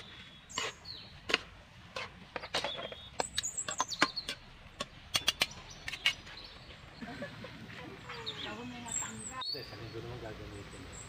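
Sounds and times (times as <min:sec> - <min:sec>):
spatula scraping metal wok: 0:00.5 - 0:00.9.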